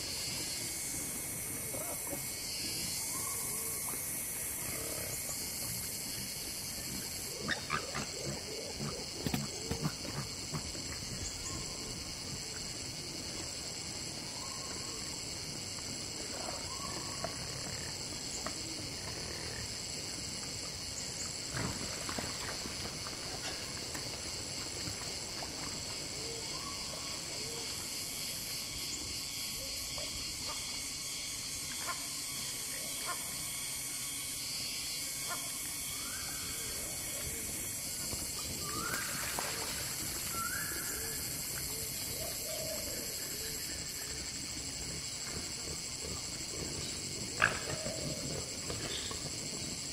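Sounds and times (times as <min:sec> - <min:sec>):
high-pitched insect chorus: 0:00.0 - 0:49.9.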